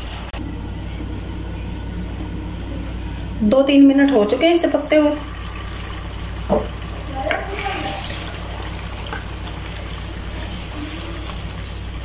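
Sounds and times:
food sizzling in oil: 4.7 - 12.0.

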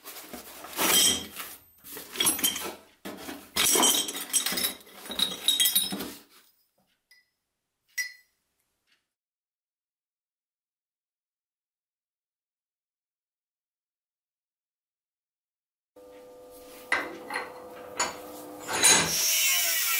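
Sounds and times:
metal bars clinking and clattering: 0.8 - 2.9, 3.6 - 6.2.

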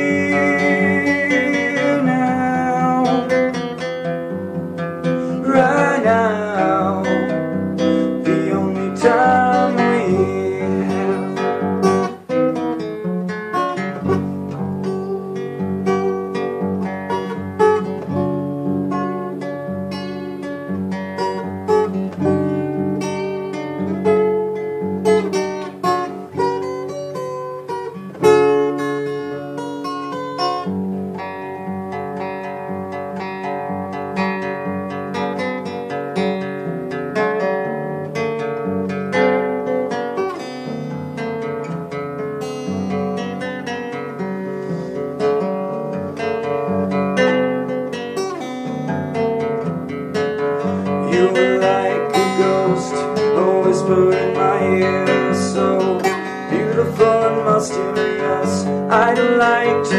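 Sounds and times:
acoustic guitar playing: 0.0 - 59.9.

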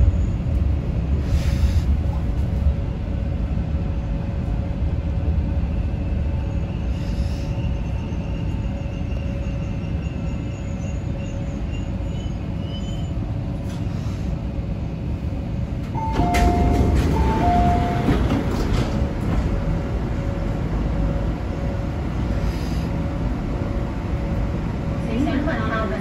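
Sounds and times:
train low rumble: 0.0 - 26.0
doors sliding open: 16.0 - 19.6.

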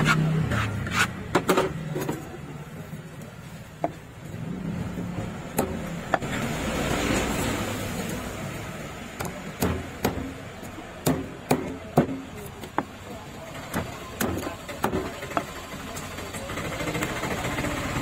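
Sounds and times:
fish scaler scraping fish: 0.0 - 1.2.

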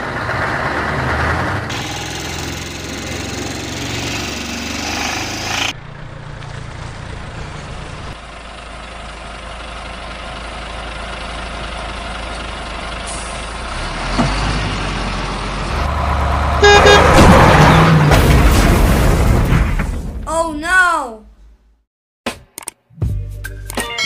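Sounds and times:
truck engine running: 0.0 - 18.0.

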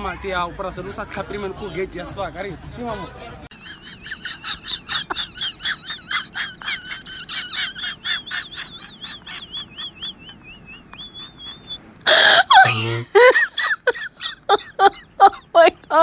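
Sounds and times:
high bird-like chirps: 8.0 - 11.8.

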